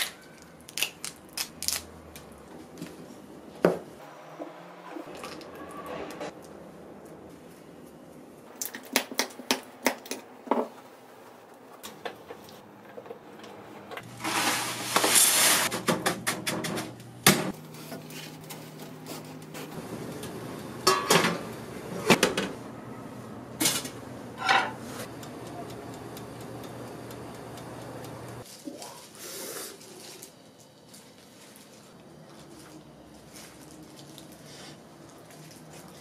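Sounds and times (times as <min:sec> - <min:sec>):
salt scraping in frying pan: 0:14.2 - 0:15.7
utensils and dishes clinking: 0:20.8 - 0:22.6, 0:23.6 - 0:25.7.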